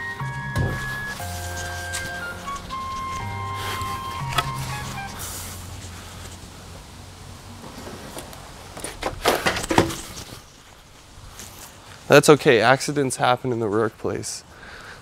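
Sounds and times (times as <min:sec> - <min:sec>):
wooden boards toppling and clattering: 0:00.3 - 0:03.0, 0:08.8 - 0:10.3.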